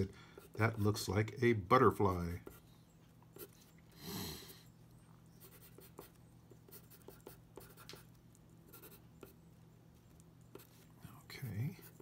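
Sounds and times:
low steady hum: 0.0s - 12.0s
pencil scratching on paper: 1.9s - 2.7s, 5.4s - 8.1s, 8.7s - 9.4s, 10.5s - 10.9s, 11.7s - 12.0s.

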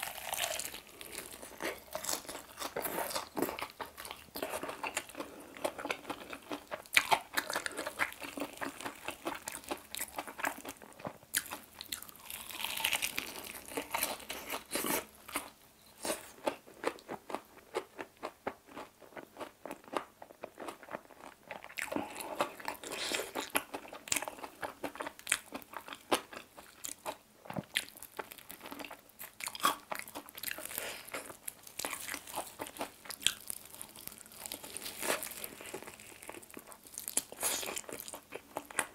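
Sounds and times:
crunching fried chicken: 0.0s - 15.5s, 16.1s - 38.9s.

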